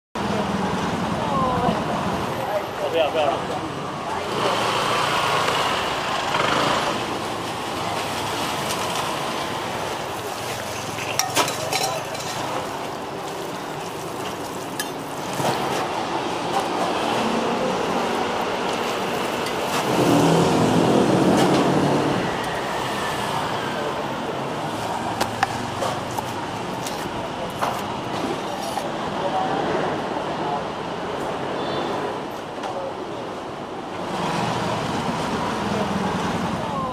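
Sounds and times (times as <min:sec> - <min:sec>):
street traffic: 0:00.2 - 0:36.9
utensils knocking: 0:11.0 - 0:12.5.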